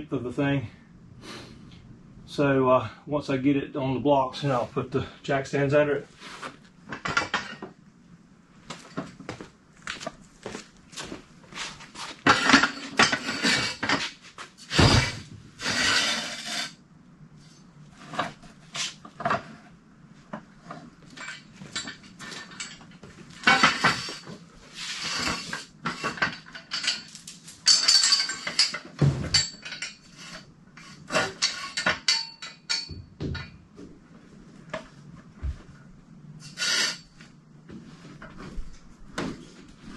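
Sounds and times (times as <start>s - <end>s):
metal stands clanking and rattling: 6.9s - 7.8s, 12.0s - 16.8s, 20.6s - 33.6s.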